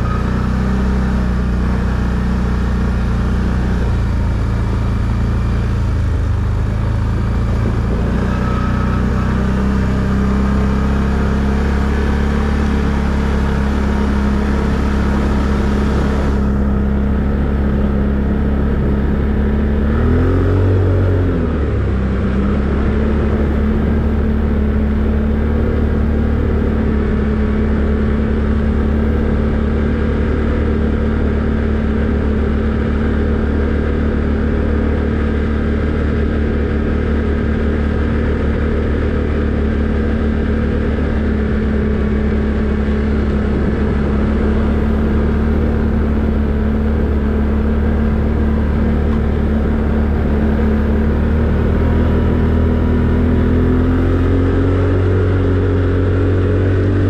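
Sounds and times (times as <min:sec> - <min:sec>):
atv engine running: 0:00.0 - 0:57.0.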